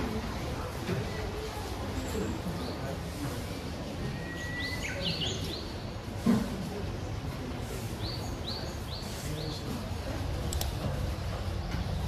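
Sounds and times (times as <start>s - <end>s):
songbirds singing: 4.0s - 6.0s, 7.8s - 9.9s.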